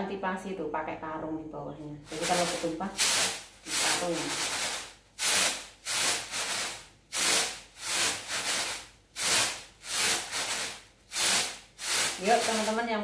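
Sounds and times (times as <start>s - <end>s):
rice swishing on bamboo tray: 2.1s - 12.9s.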